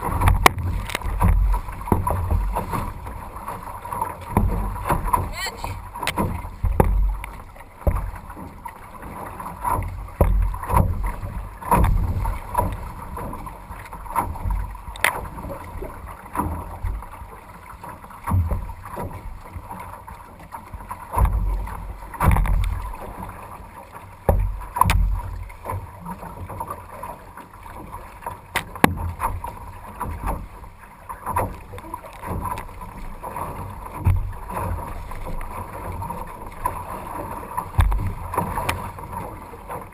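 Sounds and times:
paddle splashing water: 0.0 - 39.9
wind rumbling on microphone: 31.4 - 39.9.

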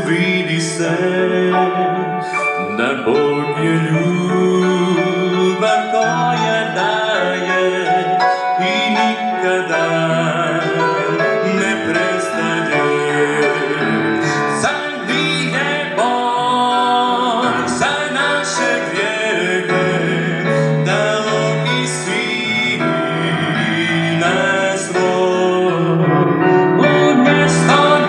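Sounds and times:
man singing into microphone: 0.0 - 28.0
band accompaniment: 22.8 - 28.0.

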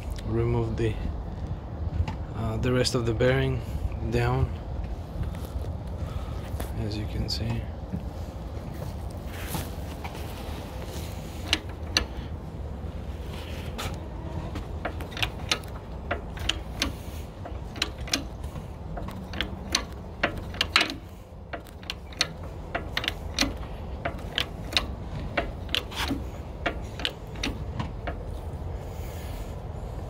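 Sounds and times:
low steady rumble: 0.0 - 30.0
jack clicking and clacking: 10.9 - 12.4, 13.7 - 28.7.

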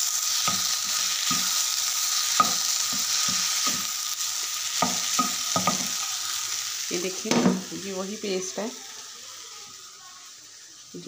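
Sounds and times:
filling sizzling in frying pan: 0.0 - 11.0
spatula knocking against pan: 2.4 - 3.9, 4.8 - 6.0.

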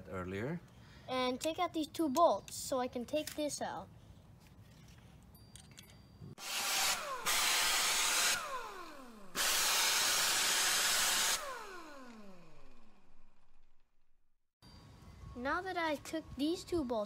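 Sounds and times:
motor tool rushing whine: 6.4 - 13.9.

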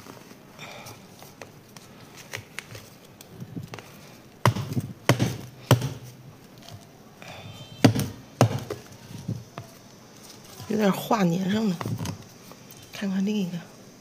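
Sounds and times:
sharp knocks on plastic container: 4.4 - 6.1, 7.8 - 8.9.

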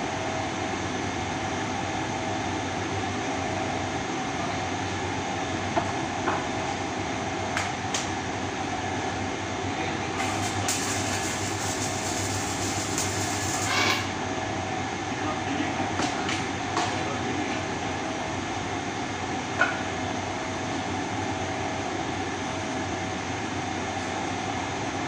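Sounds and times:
machine hum: 8.2 - 15.6
electric arc welding crackle: 10.2 - 14.2.

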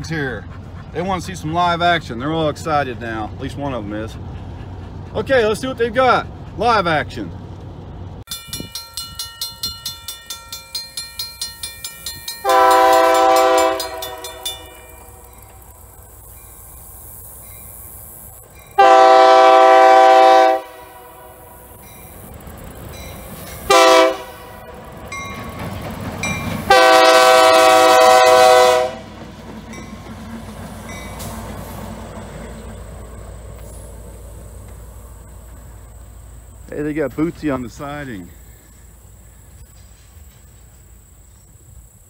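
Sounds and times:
locomotive engine rumble: 0.0 - 42.0
crossing bell dinging: 8.3 - 15.7, 21.8 - 27.3, 29.7 - 30.1, 30.8 - 31.3
locomotive air horn blasts: 12.4 - 15.2, 18.8 - 21.5, 23.7 - 24.7, 26.7 - 29.1.

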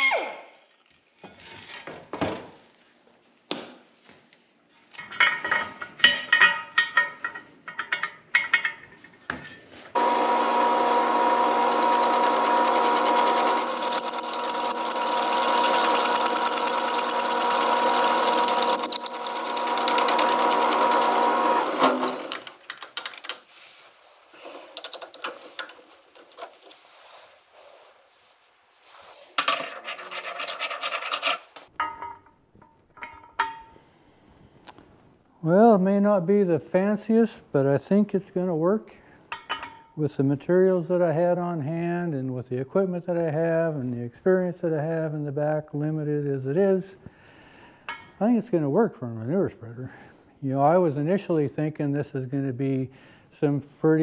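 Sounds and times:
metal lathe humming: 10.0 - 22.4
drill bit boring metal: 10.0 - 22.5
metal parts clicking: 13.6 - 19.4, 22.2 - 23.5.

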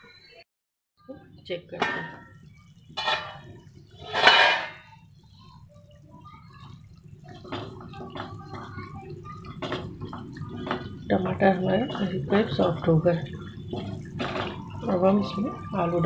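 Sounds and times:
gravy bubbling and sizzling: 1.0 - 16.0
spatula clattering: 1.8 - 5.0.

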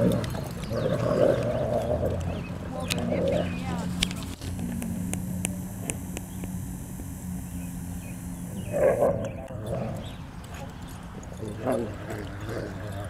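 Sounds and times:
dog play-growl: 0.0 - 5.1, 8.4 - 13.0
steady low hum: 0.0 - 13.0.

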